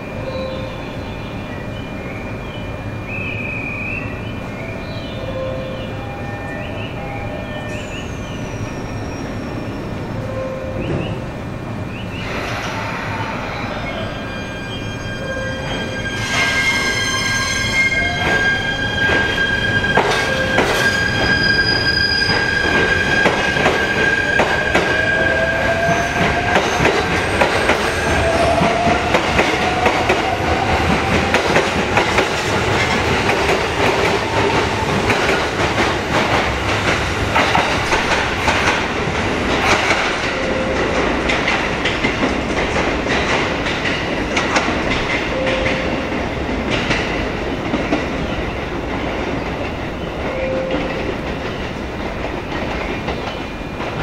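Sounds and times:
train wheels clicking over rail joints: 28.6s - 46.0s.

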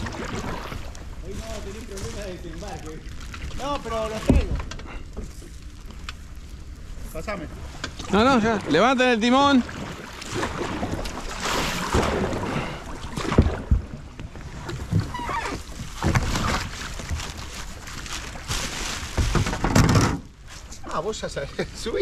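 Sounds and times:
paddle splashing in water: 0.0s - 4.7s, 7.5s - 20.1s.

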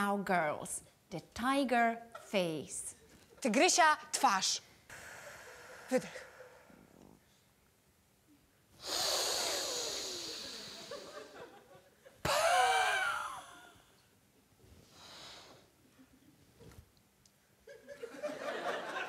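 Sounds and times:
woman exhaling forcefully: 4.9s - 7.1s, 8.8s - 11.1s, 12.3s - 13.7s.

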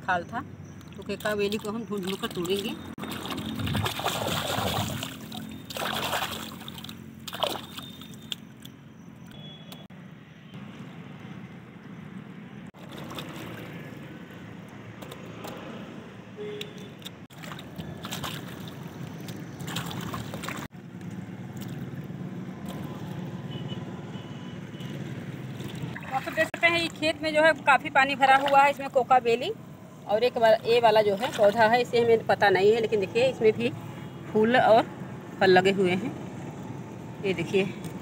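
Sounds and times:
water trickling: 0.6s - 9.4s
hands splashing pond water: 0.8s - 8.8s, 12.8s - 13.9s, 17.0s - 22.9s, 25.5s - 26.6s.

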